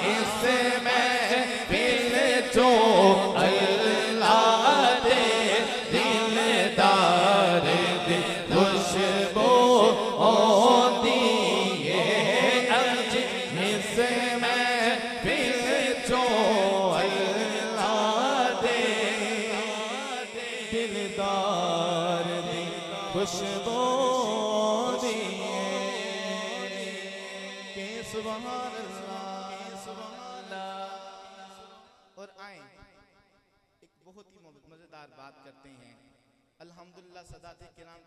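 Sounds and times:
voice holding steady drone: 0.0 - 30.2
man singing over loudspeakers: 0.0 - 32.8.

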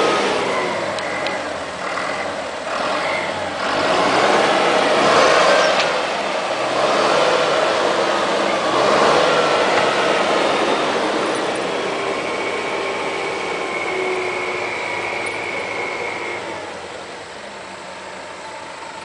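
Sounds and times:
tractor engine working hard: 0.0 - 19.0
wheels churning in mud: 0.0 - 19.0
faint steady whine: 9.8 - 19.0.

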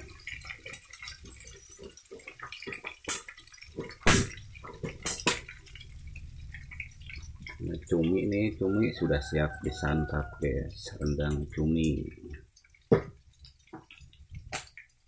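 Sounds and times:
sauce popping and spitting: 0.0 - 7.8, 11.3 - 15.0
sauce bubbling in a wok: 0.0 - 15.0.

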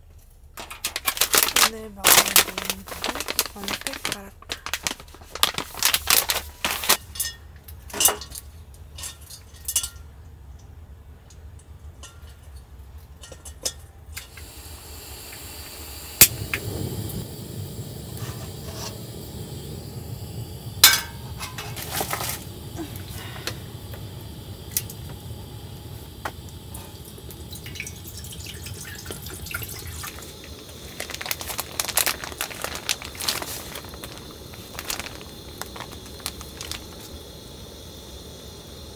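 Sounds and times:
metal cookware clinking: 7.0 - 10.2, 11.9 - 14.4, 20.8 - 22.2
water pouring into pot: 14.2 - 38.9
steady low rush: 14.4 - 38.9.

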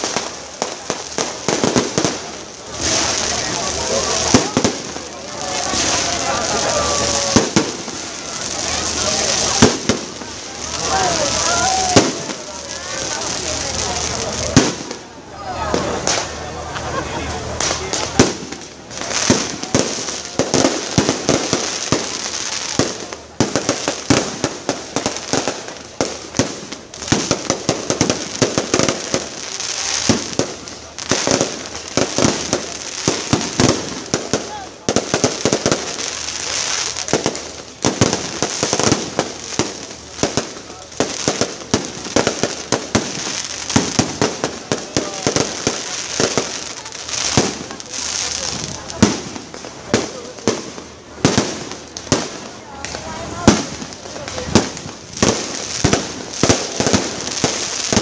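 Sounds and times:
fireworks bangs and crackles: 0.0 - 58.0
fireworks high hiss: 0.0 - 58.0.

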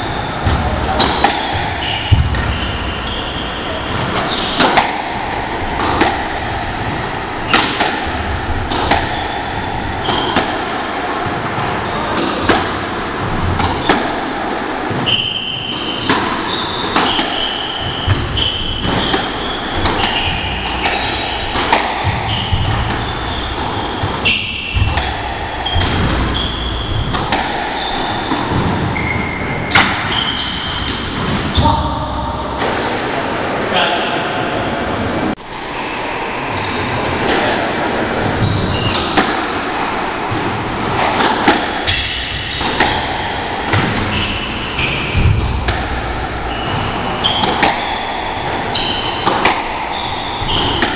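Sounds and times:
shoes squeaking on wooden floor: 0.0 - 4.7, 15.0 - 27.1, 27.7 - 31.8, 46.4 - 50.9
squash ball hits: 0.0 - 33.2, 37.2 - 50.9.

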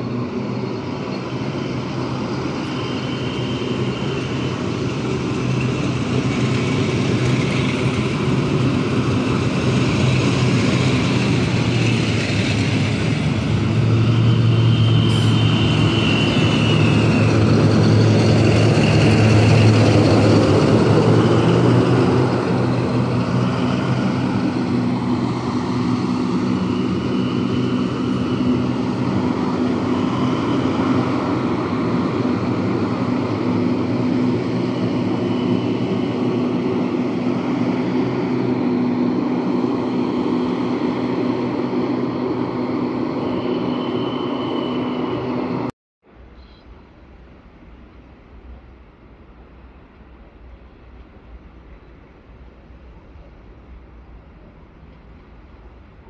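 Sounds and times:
short high squeals: 43.1 - 45.6.

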